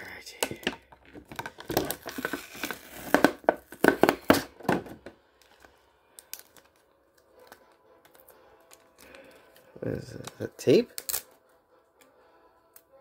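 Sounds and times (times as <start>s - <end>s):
plastic packaging crinkling: 0.6s - 4.4s.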